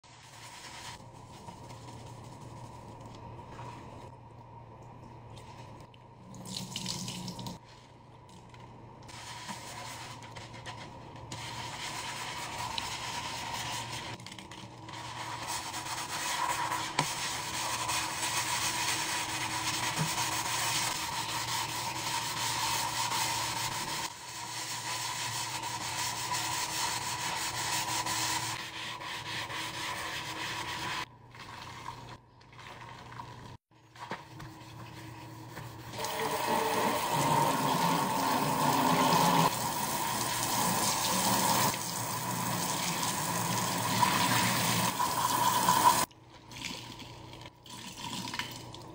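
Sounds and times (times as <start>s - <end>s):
sponge scouring steel sink: 0.0s - 4.0s, 9.1s - 46.1s.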